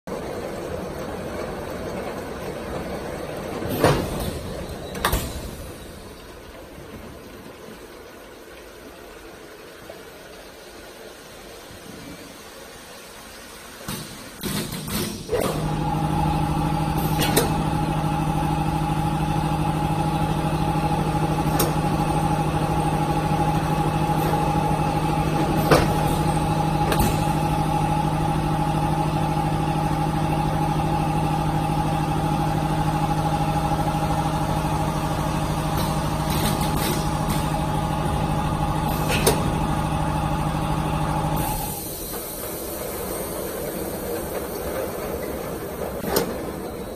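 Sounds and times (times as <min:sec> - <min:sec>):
filling machine humming: 0:15.4 - 0:46.9.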